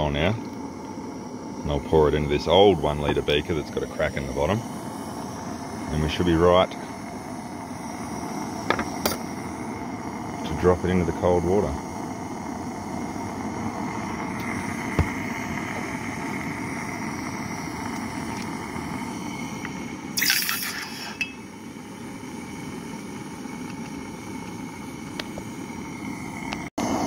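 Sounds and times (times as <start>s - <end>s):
gas torch roaring: 0.0s - 27.0s
molten metal sizzling in water: 0.1s - 24.8s.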